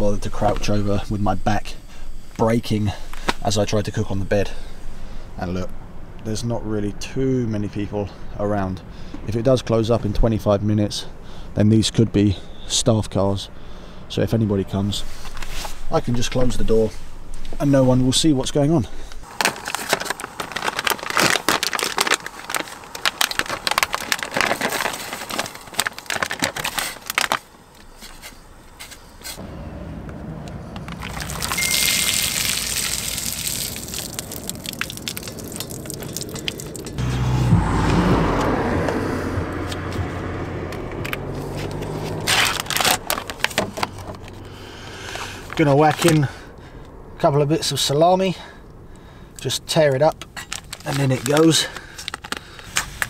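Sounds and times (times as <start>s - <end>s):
plastic packet rustling: 19.3s - 28.4s, 30.8s - 37.0s, 41.6s - 44.4s, 50.4s - 53.0s.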